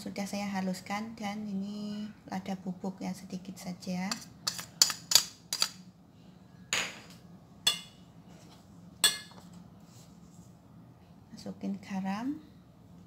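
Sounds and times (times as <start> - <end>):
metal spoon tapping steel bowl: 7.7 - 8.0, 9.0 - 9.4.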